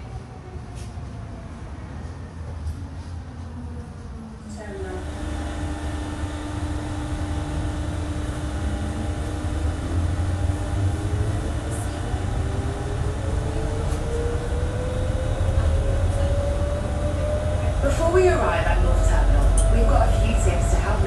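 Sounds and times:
shuttle train drive whine: 3.9s - 21.0s
deep rumble: 4.6s - 21.0s
steady tone: 4.9s - 21.0s.

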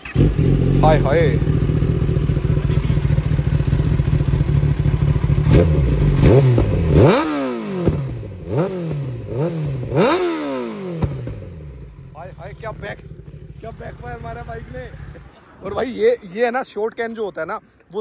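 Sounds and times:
motorcycle engine idling and revving: 0.0s - 15.7s.

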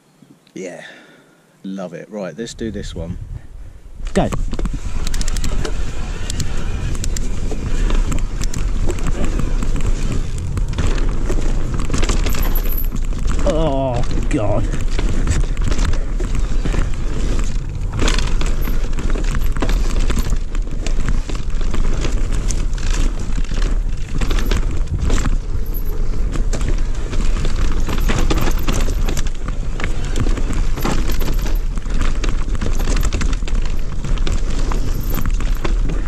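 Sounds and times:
wind buffeting microphone: 2.8s - 27.9s
tyre noise on dirt: 4.0s - 36.0s
chain and frame rattling: 10.3s - 13.3s, 16.6s - 36.0s.

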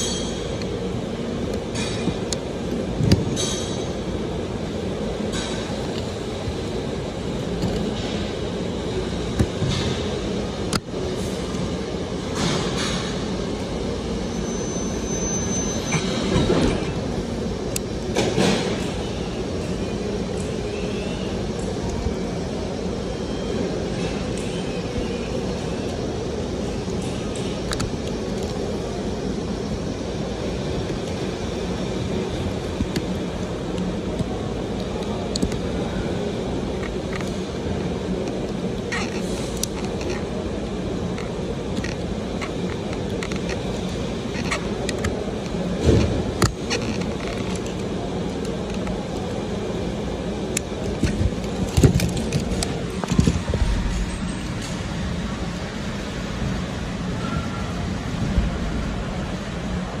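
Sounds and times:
machine hum: 0.0s - 60.0s.

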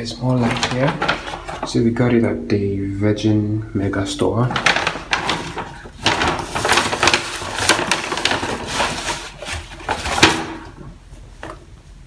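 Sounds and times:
paper bag rustling: 0.0s - 2.1s, 4.3s - 11.0s.

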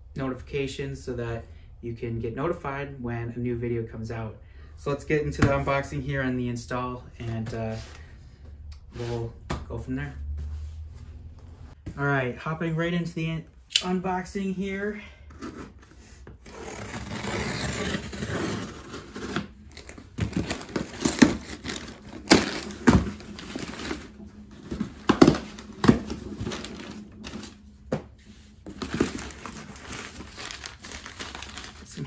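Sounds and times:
cardboard crackling: 16.5s - 32.0s
packing paper rustling: 16.6s - 27.6s, 28.3s - 32.0s.

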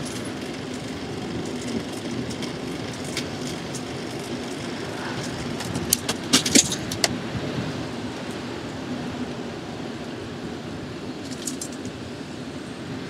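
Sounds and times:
bicycle chain clicking and rattling: 0.0s - 7.2s, 11.2s - 12.1s
bicycle rolling noise: 0.0s - 13.0s
road traffic: 0.0s - 13.0s.

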